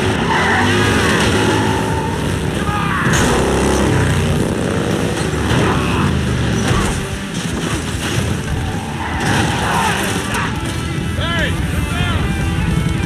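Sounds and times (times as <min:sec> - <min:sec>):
motorcycles running: 0:00.0 - 0:13.0
crash knocks and thuds: 0:06.6 - 0:10.8.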